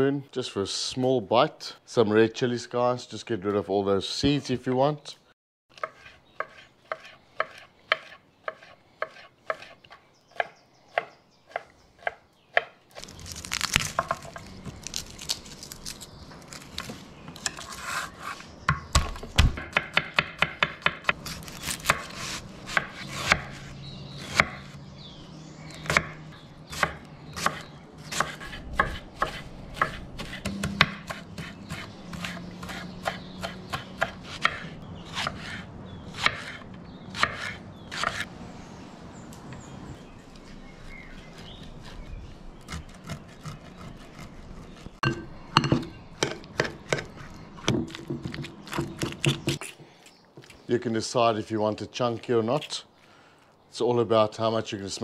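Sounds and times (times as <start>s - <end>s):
knife chopping on cutting board: 5.8s - 9.8s, 18.7s - 23.6s, 25.8s - 35.6s.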